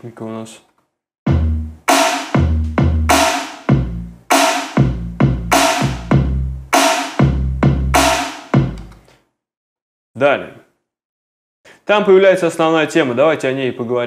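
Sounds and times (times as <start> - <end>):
deep bass line: 1.3 - 8.9.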